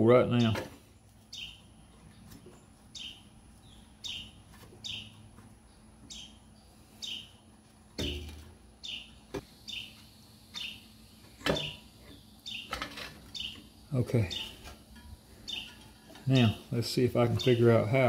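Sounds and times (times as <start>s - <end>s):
bird chirping: 0.3s - 18.0s
sharp knocks: 8.0s - 8.4s.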